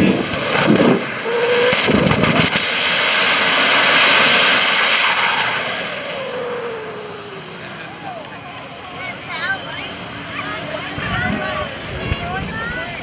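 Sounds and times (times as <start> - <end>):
high engine whine: 0.0 - 13.0
jet engine roaring past: 0.0 - 13.0.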